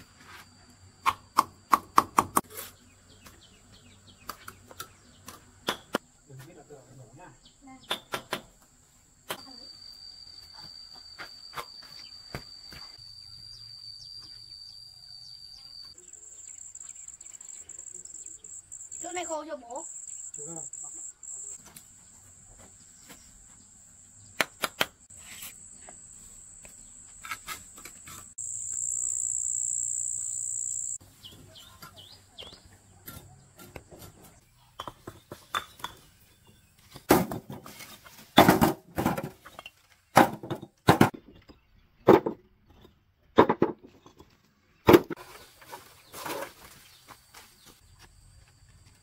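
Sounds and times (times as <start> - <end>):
insect high-pitched call: 9.3 - 22.0, 25.1 - 31.0.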